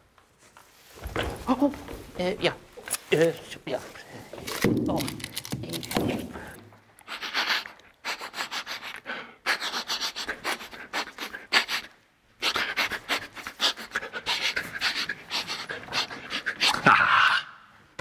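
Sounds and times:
man sniffing hard: 0:07.0 - 0:16.7.

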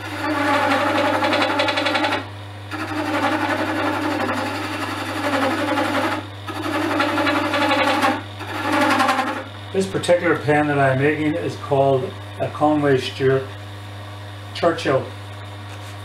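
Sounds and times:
chisel rattling on spinning wood: 0:00.0 - 0:09.4
lathe motor hum: 0:00.0 - 0:10.9.

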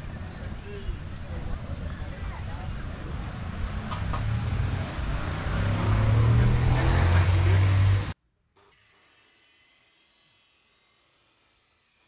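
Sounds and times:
construction machinery engine hum: 0:00.0 - 0:08.2.

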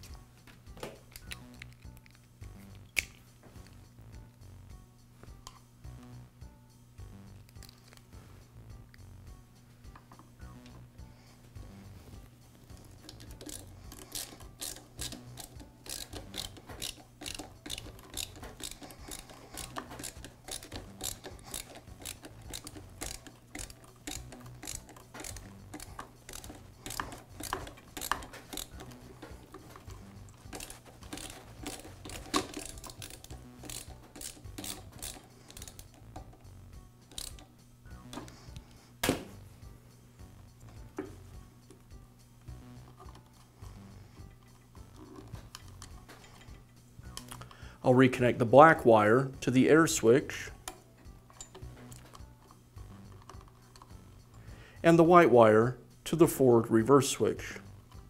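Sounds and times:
steady low hum: 0:00.0 - 0:55.1
screwdriver clicks and scrapes: 0:12.8 - 0:36.4, 0:37.1 - 0:37.5, 0:44.4 - 0:47.6, 0:50.6 - 0:54.4.

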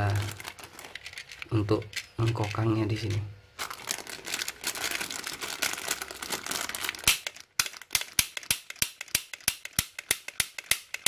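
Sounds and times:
plastic bag crinkling: 0:00.0 - 0:08.2
toy pistol clicking: 0:07.1 - 0:11.0.

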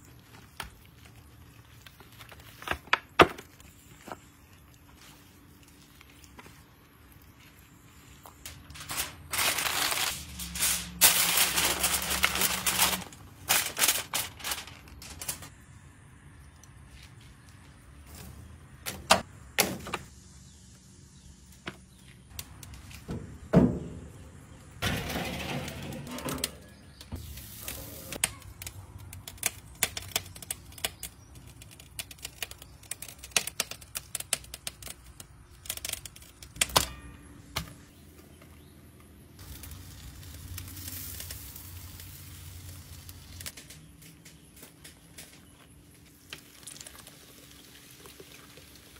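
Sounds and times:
aluminium foil crinkling: 0:00.0 - 0:15.5, 0:27.3 - 0:37.0, 0:39.4 - 0:48.9.

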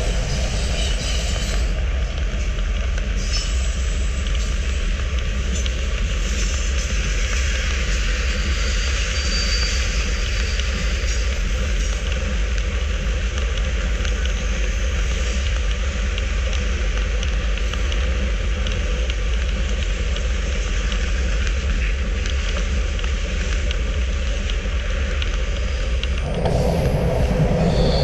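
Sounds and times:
bike tyres on asphalt: 0:00.2 - 0:28.0
light ticks: 0:15.3 - 0:26.3
wind buffeting microphone: 0:24.1 - 0:28.0.

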